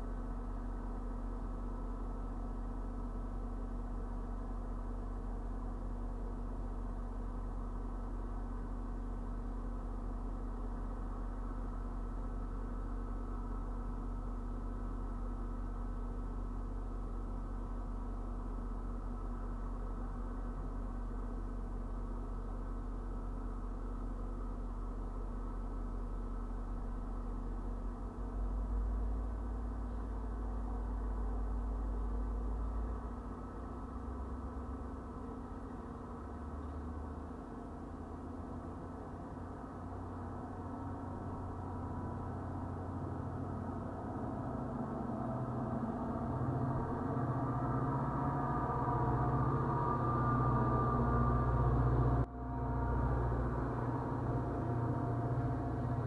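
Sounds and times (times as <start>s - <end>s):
low engine hum: 0.0s - 56.0s
steady tones: 40.1s - 56.0s.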